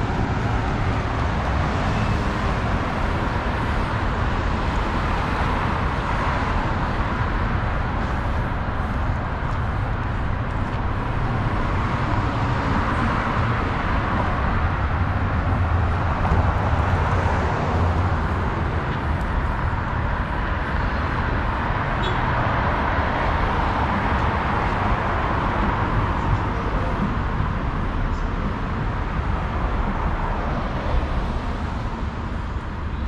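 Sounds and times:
low city rumble: 0:00.0 - 0:33.0.

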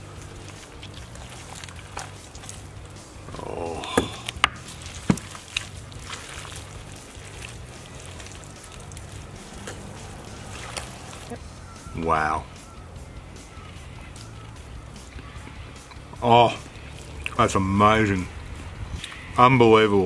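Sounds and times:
meat tearing: 0:00.0 - 0:11.3, 0:16.7 - 0:17.4.

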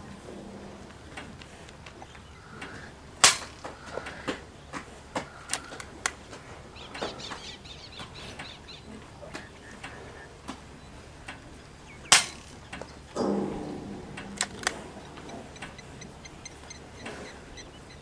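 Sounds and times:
sharp clicks and ticks: 0:12.1 - 0:18.0
air rifle shot: 0:13.2 - 0:16.2.

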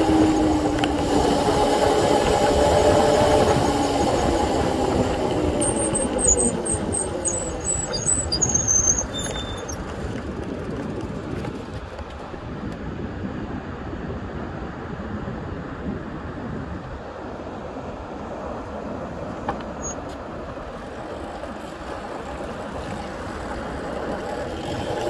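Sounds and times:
short high-pitched squeaks: 0:05.5 - 0:09.9, 0:19.7 - 0:20.2.

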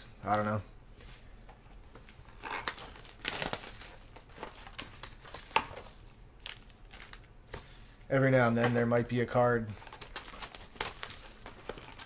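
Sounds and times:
foil wrapper crinkling: 0:02.4 - 0:08.0, 0:09.8 - 0:12.0.

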